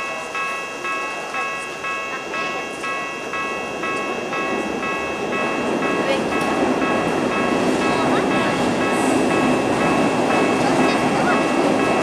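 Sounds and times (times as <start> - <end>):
level-crossing alarm bell: 0.0 - 12.0.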